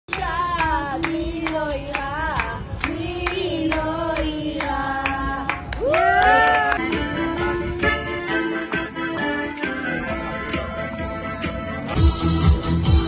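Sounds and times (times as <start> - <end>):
hands clapping in time: 4.6 - 7.1.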